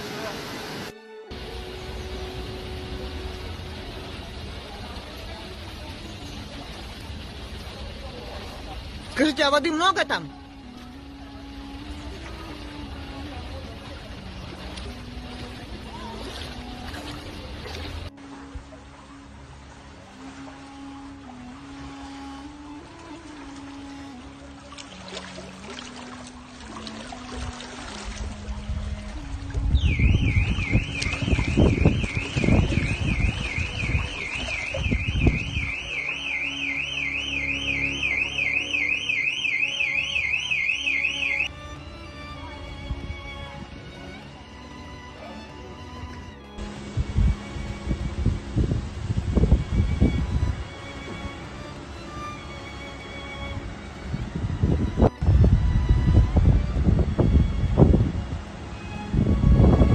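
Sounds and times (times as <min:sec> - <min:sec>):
rushing water: 0:00.0 - 0:59.9
wind buffeting microphone: 0:27.4 - 0:35.9, 0:46.6 - 0:51.5, 0:53.3 - 0:59.9
car alarm siren wailing: 0:29.7 - 0:41.5.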